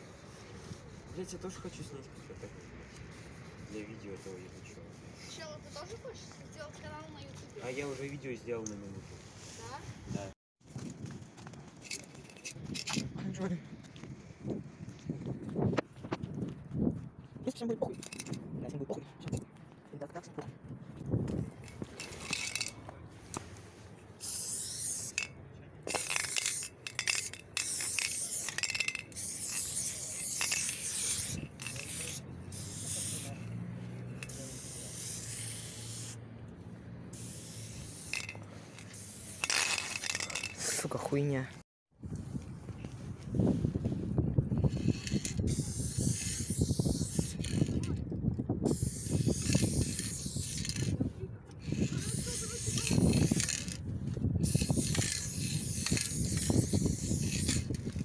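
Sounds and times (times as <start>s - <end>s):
aerosol spray can hissing: 24.2s - 25.2s, 25.9s - 36.2s, 37.2s - 40.2s, 44.8s - 47.7s, 48.7s - 50.9s, 51.7s - 53.7s, 54.4s - 57.8s.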